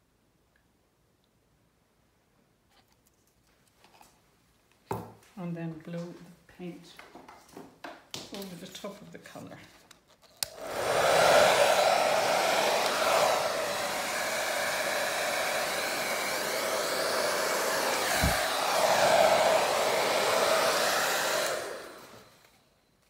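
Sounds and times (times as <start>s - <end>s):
hair dryer running: 10.4s - 22.6s.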